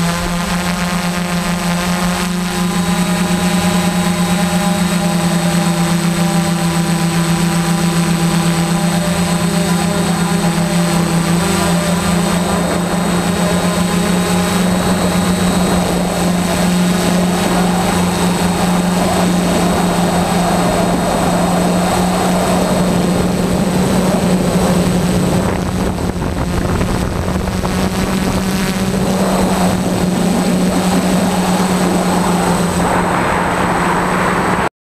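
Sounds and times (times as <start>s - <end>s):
drone propellers buzzing: 0.0s - 34.7s
rushing noise: 8.4s - 34.7s.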